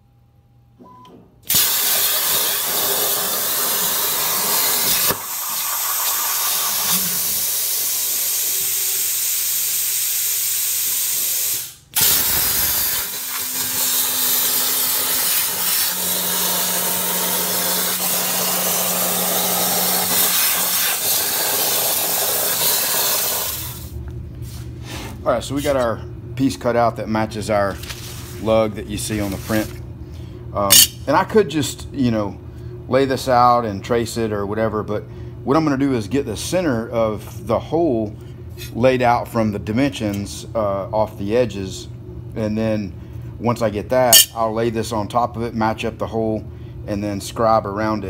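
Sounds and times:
plasma arc hissing: 0:01.5 - 0:24.0, 0:30.7 - 0:31.0.

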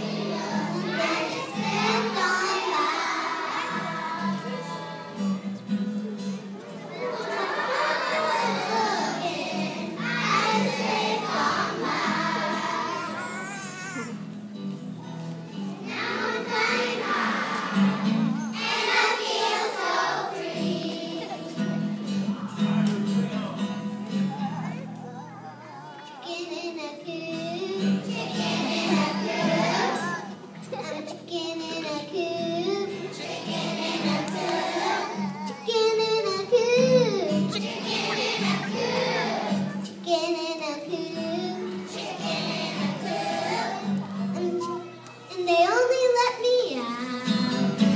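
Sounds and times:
children's choir singing: 0:00.0 - 0:05.5, 0:06.8 - 0:13.4, 0:15.7 - 0:22.4, 0:26.2 - 0:44.8, 0:47.0 - 0:47.9.

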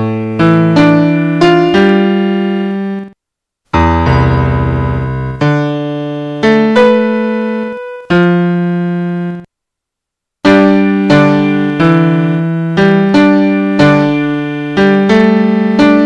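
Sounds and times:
slow keyboard chords: 0:00.0 - 0:09.5, 0:10.4 - 0:16.0.

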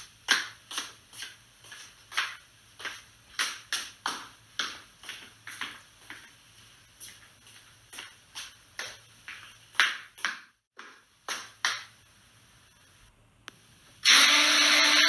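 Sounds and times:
electric hand blender whining: 0:14.0 - 0:15.0.

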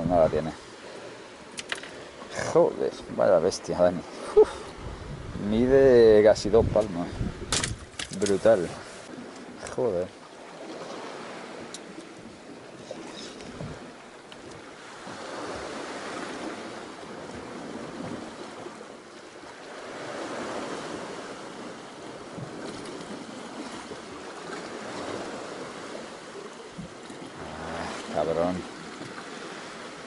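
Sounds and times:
sea water washing around boat: 0:00.0 - 0:30.0
wind on microphone: 0:04.1 - 0:09.6, 0:11.1 - 0:19.0, 0:19.8 - 0:28.1.

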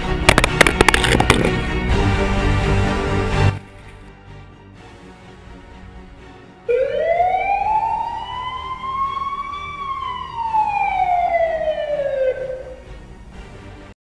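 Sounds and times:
siren wail: 0:06.7 - 0:12.9.

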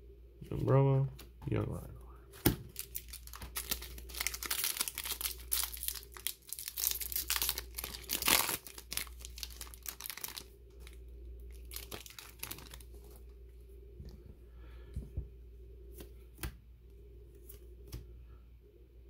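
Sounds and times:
handling of cards: 0:02.3 - 0:11.0
foil wrapper tearing and crinkling: 0:02.7 - 0:13.2.

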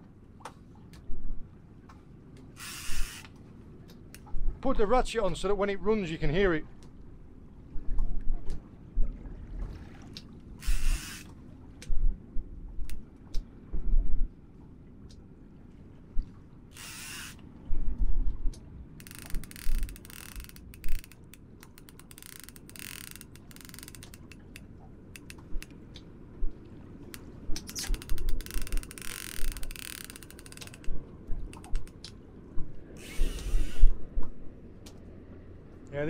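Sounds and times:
fishing reel ratchet clicking: 0:02.6 - 0:03.3, 0:10.6 - 0:11.3, 0:16.8 - 0:17.4, 0:19.0 - 0:24.6, 0:25.2 - 0:25.7, 0:27.7 - 0:30.9, 0:33.0 - 0:33.9.

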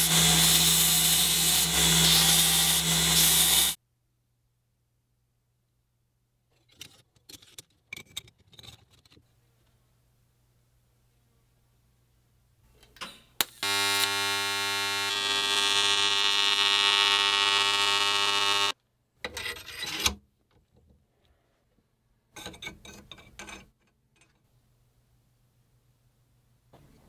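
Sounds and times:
welding arc buzzing: 0:00.0 - 0:03.8, 0:13.4 - 0:18.8.

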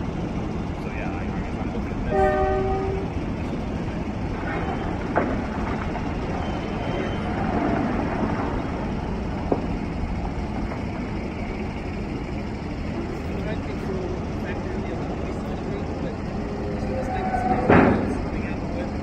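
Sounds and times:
mining machinery rumble: 0:00.0 - 0:19.0
horn blast: 0:02.1 - 0:03.1.

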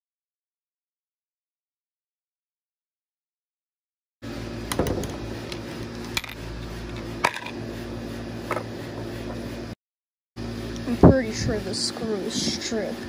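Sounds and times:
steady low hum: 0:04.2 - 0:09.8, 0:10.4 - 0:13.0.

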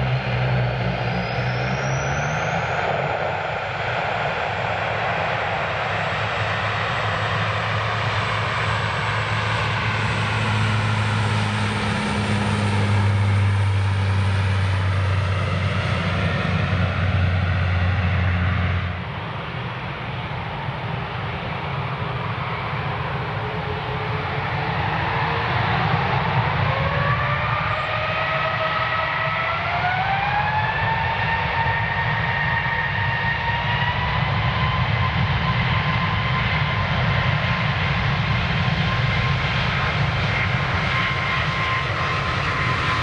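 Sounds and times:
faint rising whine: 0:00.0 - 0:21.0
jet engine noise: 0:00.0 - 0:43.0
propeller plane drone: 0:00.0 - 0:43.0.

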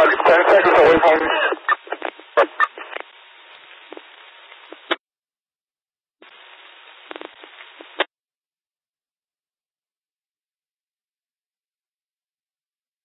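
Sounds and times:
radio squelch burst: 0:00.0 - 0:05.0
radio static hiss with clicks: 0:00.0 - 0:05.0, 0:06.2 - 0:08.1.

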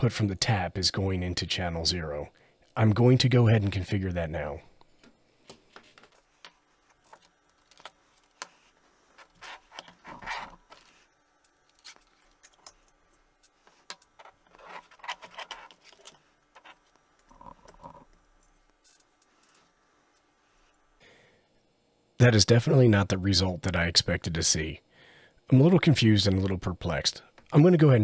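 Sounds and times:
cables shifting: 0:04.8 - 0:20.3.

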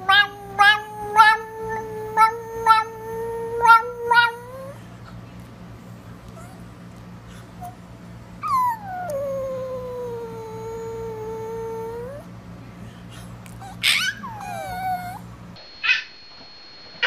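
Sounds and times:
dog howling: 0:00.0 - 0:04.8, 0:08.4 - 0:12.3, 0:13.6 - 0:15.3.

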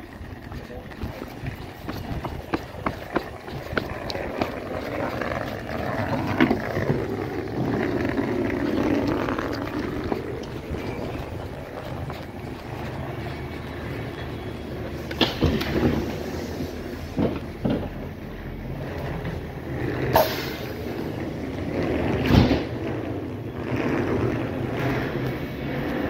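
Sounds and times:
electric train equipment hum: 0:00.0 - 0:26.0
footsteps knocking on train floor: 0:01.0 - 0:04.9.

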